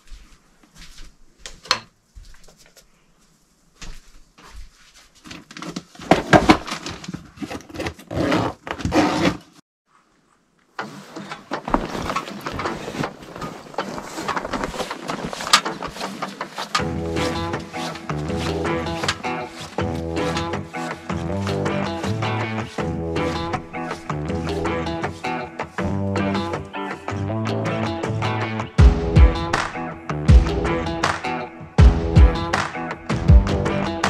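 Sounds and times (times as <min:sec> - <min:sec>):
footsteps crunching in snow: 0:00.0 - 0:01.4, 0:11.6 - 0:25.8
gear rustling into backpack: 0:10.9 - 0:21.2.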